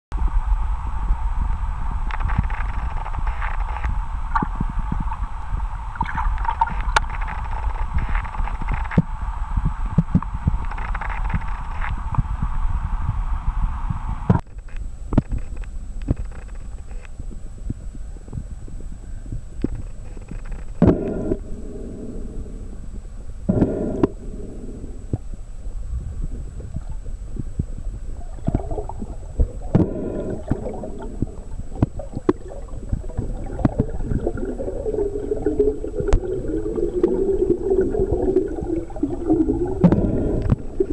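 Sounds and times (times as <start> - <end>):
low underwater rumble: 0.2 - 14.3, 15.4 - 40.9
clicks underwater: 2.1 - 5.2, 6.0 - 9.1, 9.9 - 12.2, 19.6 - 22.7, 23.5 - 25.3, 26.6 - 40.9
bubbling gurgle: 4.3 - 8.7, 26.0 - 40.9.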